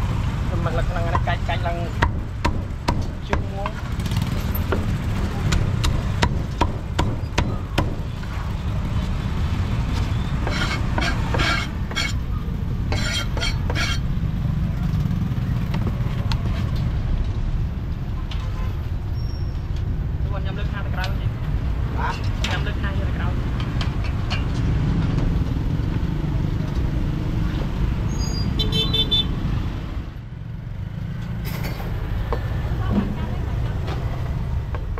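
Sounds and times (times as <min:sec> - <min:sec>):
low traffic rumble: 0:00.0 - 0:34.9
cleaver chopping on wooden block: 0:02.0 - 0:03.8, 0:04.7 - 0:08.1.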